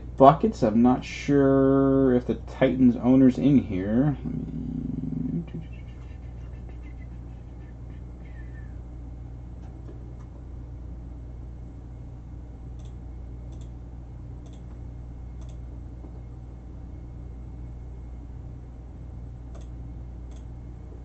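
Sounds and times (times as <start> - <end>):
low electrical hum: 0.0 - 21.0
faint sharp clicks: 19.5 - 20.5.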